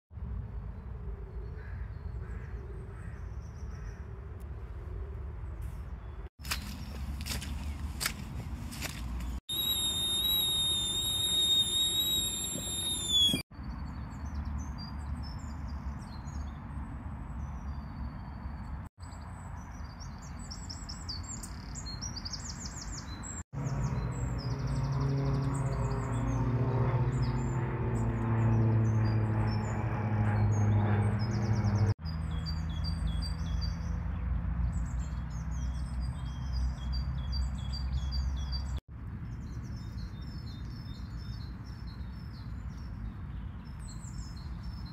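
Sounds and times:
low rumble of wind or traffic: 0:00.1 - 0:44.9
songbirds chirping: 0:05.2 - 0:09.4, 0:30.4 - 0:44.9
high steady whistle: 0:09.5 - 0:13.4
low engine drone: 0:09.5 - 0:13.4, 0:23.6 - 0:32.0.

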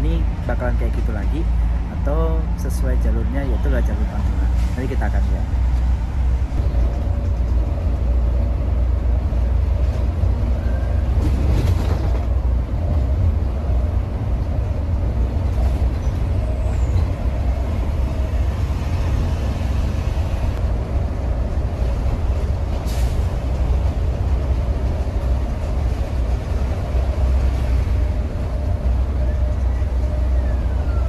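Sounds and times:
low rumble of engine and road: 0:00.0 - 0:31.0.

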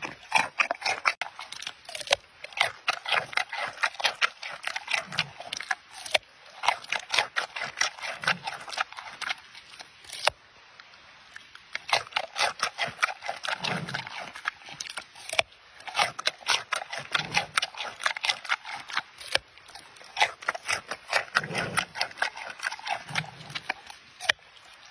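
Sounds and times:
panda crunching carrot: 0:00.0 - 0:10.4, 0:11.7 - 0:24.9.

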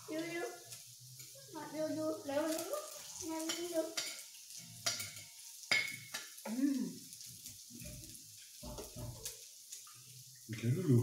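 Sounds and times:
food sizzling on a grill: 0:00.0 - 0:11.0
forks tapping and scraping plate: 0:03.4 - 0:06.5, 0:07.4 - 0:10.7.

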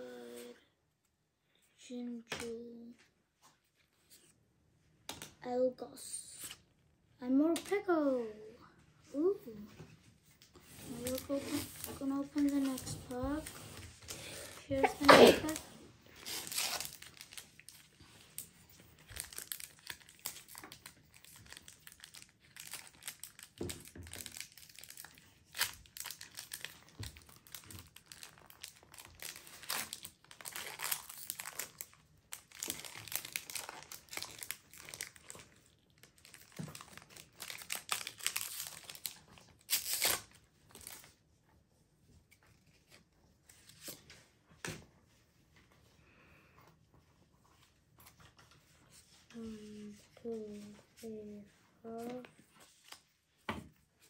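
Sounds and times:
foil wrapper tearing and crinkling: 0:10.8 - 0:12.8, 0:16.2 - 0:41.1.

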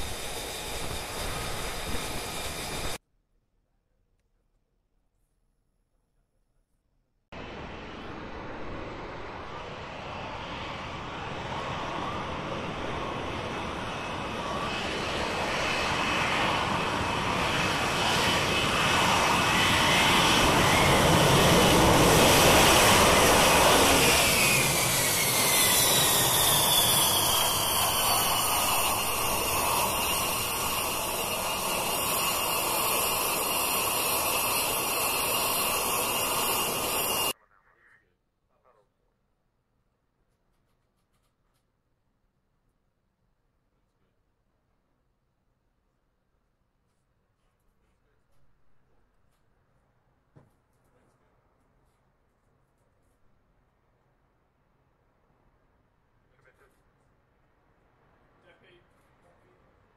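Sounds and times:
jet engine roar: 0:00.0 - 0:03.0, 0:07.4 - 0:37.4
high whine falling in pitch: 0:22.0 - 0:37.3.

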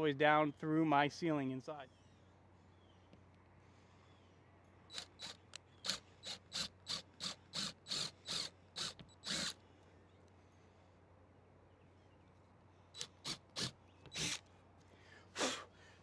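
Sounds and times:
cordless drill short bursts: 0:04.9 - 0:09.6, 0:13.0 - 0:14.4.

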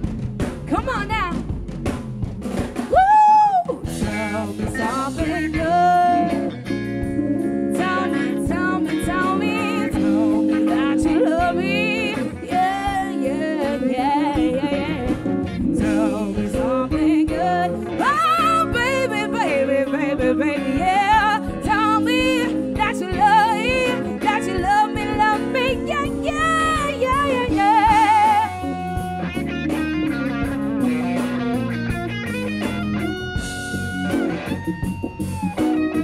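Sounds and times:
drum kit: 0:00.0 - 0:36.0
electric bass: 0:00.0 - 0:36.0
electric guitar: 0:02.4 - 0:36.0
woman singing: 0:03.3 - 0:06.5, 0:07.7 - 0:28.8.

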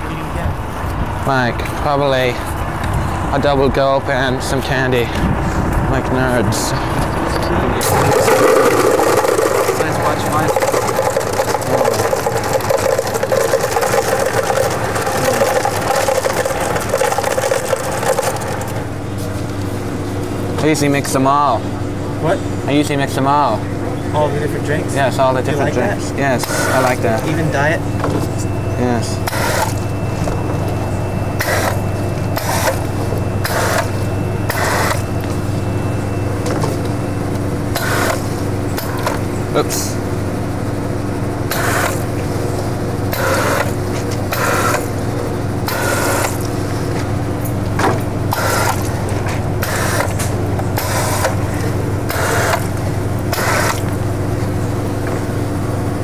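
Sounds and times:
machine running with hum: 0:00.0 - 0:56.0
soda fountain dispensing drinks: 0:06.0 - 0:19.4, 0:22.7 - 0:29.9, 0:31.4 - 0:35.2, 0:37.6 - 0:40.2, 0:41.3 - 0:47.3, 0:48.1 - 0:55.4.

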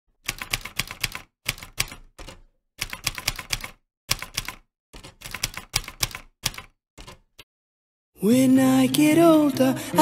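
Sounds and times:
typewriter key clicks: 0:00.3 - 0:07.4.

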